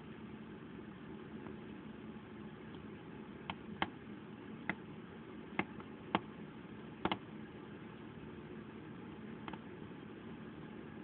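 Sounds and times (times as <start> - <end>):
steady low hum: 0.0 - 11.0
sharp clicks: 7.0 - 7.2.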